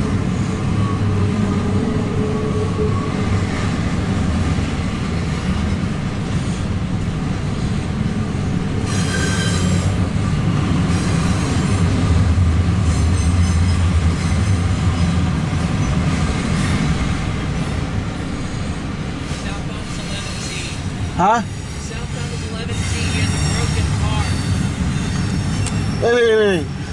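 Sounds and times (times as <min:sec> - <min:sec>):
freight train rumbling past: 0:00.0 - 0:26.9
wheel flanges squealing: 0:08.8 - 0:10.0, 0:12.8 - 0:16.9, 0:17.6 - 0:26.9.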